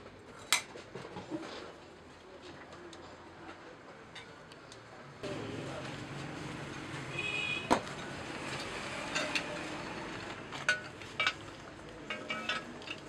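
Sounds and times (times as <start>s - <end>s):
metal tools clinking: 8.5s - 9.7s, 10.6s - 13.0s.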